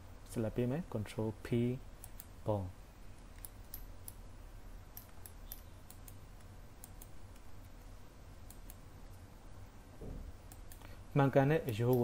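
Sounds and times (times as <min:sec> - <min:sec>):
low steady hum: 0:00.0 - 0:12.0
computer mouse and keyboard clicks: 0:03.2 - 0:04.2, 0:04.9 - 0:09.2.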